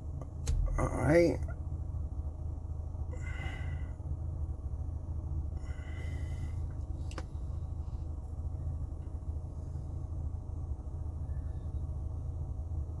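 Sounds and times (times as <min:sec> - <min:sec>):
car cabin engine rumble: 0:00.0 - 0:13.0
sharp click: 0:00.3 - 0:00.8
person breathing: 0:03.1 - 0:04.0, 0:05.6 - 0:06.9.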